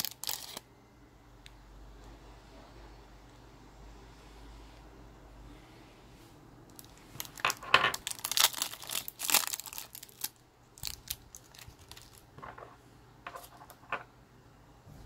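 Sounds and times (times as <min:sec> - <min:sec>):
wrapper crinkling: 0:00.0 - 0:00.6, 0:06.7 - 0:12.3.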